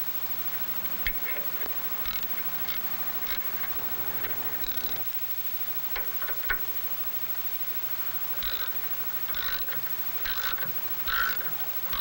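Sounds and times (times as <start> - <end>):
threads creaking squeaks: 8.4 - 12.0.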